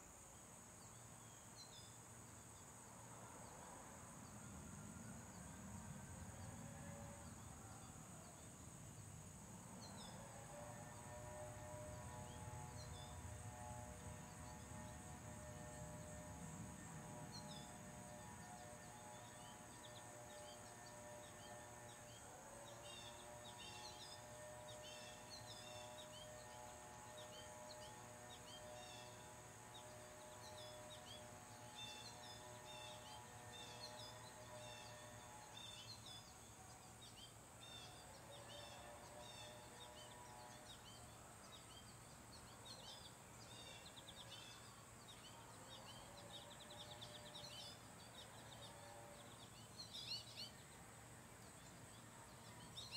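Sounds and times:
songbirds chirping: 0:00.0 - 0:52.9
steady high hiss: 0:00.0 - 0:52.9.

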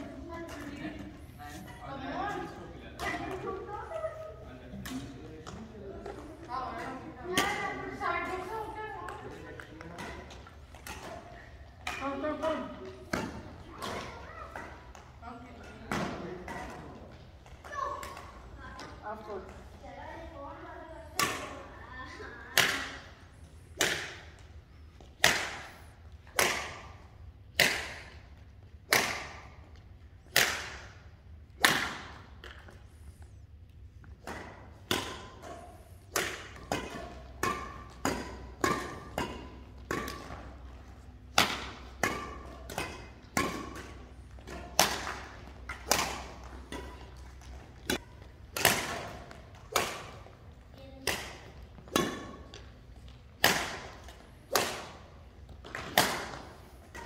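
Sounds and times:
racket hitting shuttlecock: 0:09.2 - 0:15.1, 0:15.9 - 0:18.4, 0:21.1 - 0:21.7, 0:22.3 - 0:24.4, 0:25.1 - 0:28.3, 0:28.9 - 0:29.6, 0:30.3 - 0:32.7, 0:34.1 - 0:57.0.

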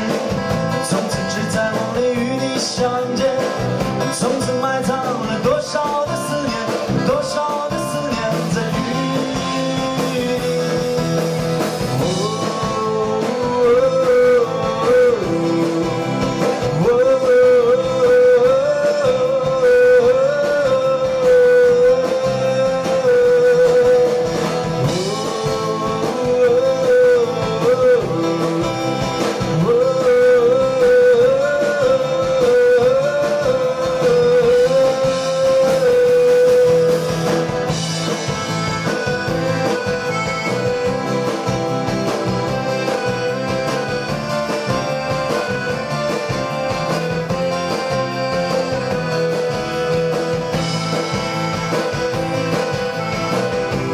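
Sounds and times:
accordion: 0:00.0 - 0:53.9
strummed acoustic guitar: 0:00.0 - 0:53.9
wavering lead melody bending in pitch: 0:36.8 - 0:53.9.

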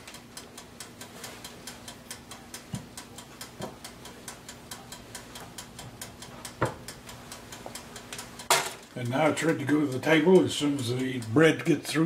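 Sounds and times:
faint steady hum: 0:00.0 - 0:12.0
wind-up timer ticking: 0:00.0 - 0:12.0.

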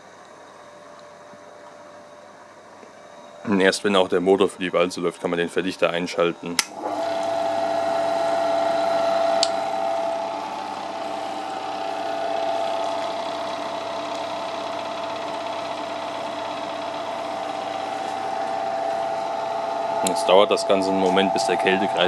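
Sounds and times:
ice machine humming: 0:05.8 - 0:22.0.

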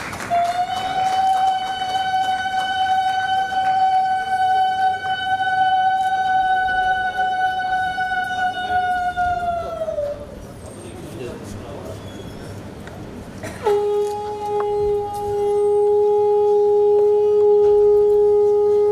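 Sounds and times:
conch shell blown: 0:00.2 - 0:09.2, 0:13.6 - 0:18.9.

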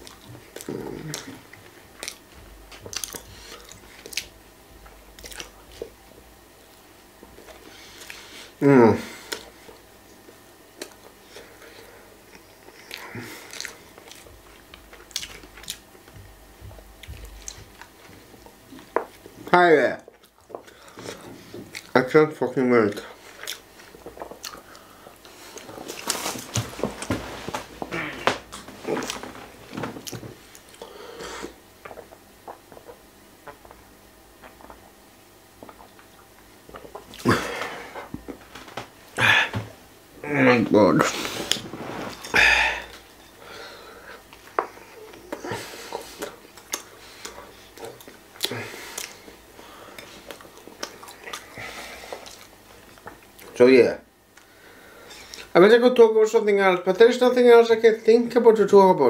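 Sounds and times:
person chewing crunchy food: 0:00.0 - 0:06.0, 0:10.8 - 0:19.4, 0:22.9 - 0:38.4, 0:44.0 - 0:53.6.

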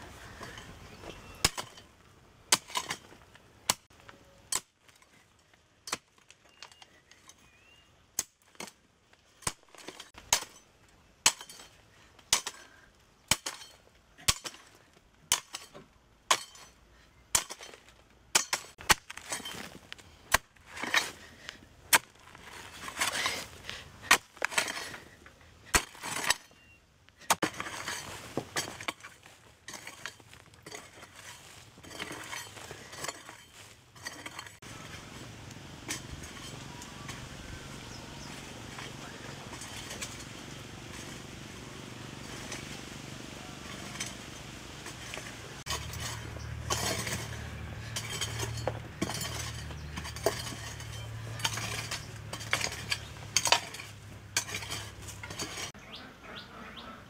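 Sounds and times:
hoe striking clay soil: 0:00.0 - 0:55.8
earth scraping and crumbling: 0:00.0 - 0:55.9.

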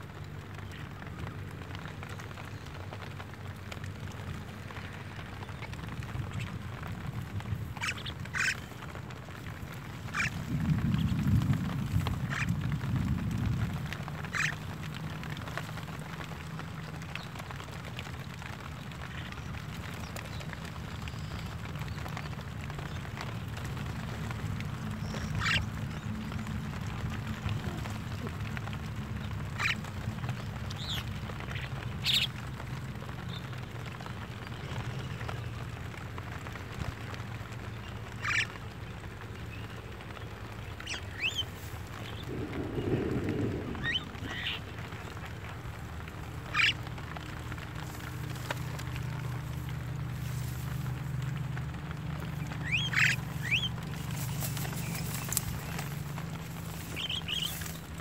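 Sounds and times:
low steady rumble: 0:00.0 - 0:58.0
mynas calling: 0:05.4 - 0:09.0, 0:09.6 - 0:11.3, 0:12.1 - 0:12.9, 0:13.8 - 0:15.0, 0:24.9 - 0:32.6, 0:38.1 - 0:38.6, 0:40.6 - 0:49.6, 0:52.2 - 0:58.0.

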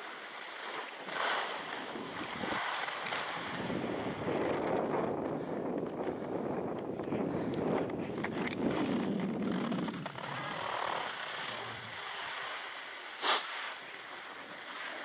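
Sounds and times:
skis scraping on snow: 0:00.0 - 0:06.4, 0:07.2 - 0:15.0
wind buffeting microphone: 0:01.7 - 0:12.1.

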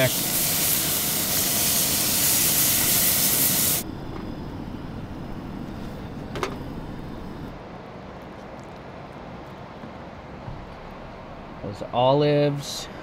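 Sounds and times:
fish sizzling in skillet: 0:00.0 - 0:03.8.

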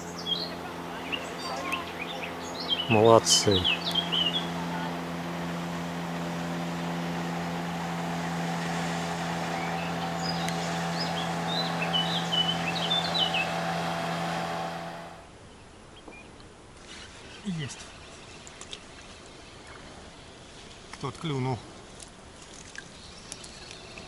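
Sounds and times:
small birds chirping: 0:00.0 - 0:15.2
steady engine hum: 0:00.0 - 0:15.3.

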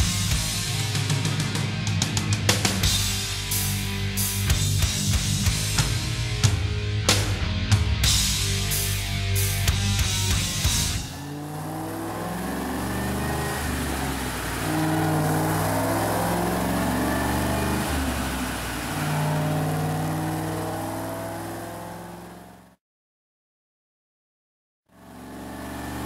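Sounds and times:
supercharged car engine on dyno: 0:08.0 - 0:22.8, 0:24.9 - 0:26.0.

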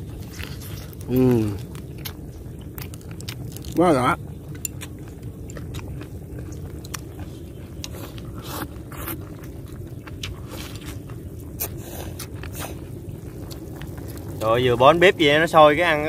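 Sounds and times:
steady low rumble: 0:00.0 - 0:16.0
slurping noodles: 0:07.8 - 0:14.4.

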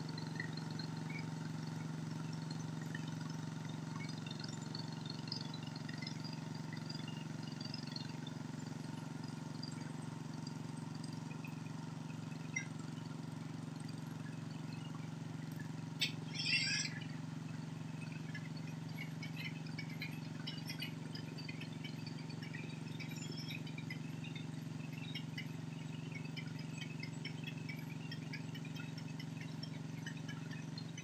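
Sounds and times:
engine idling: 0:00.0 - 0:31.0
high chirps: 0:15.7 - 0:30.9.

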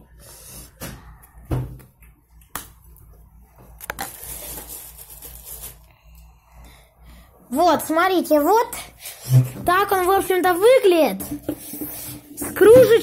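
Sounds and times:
packaging rustling: 0:03.7 - 0:05.9.

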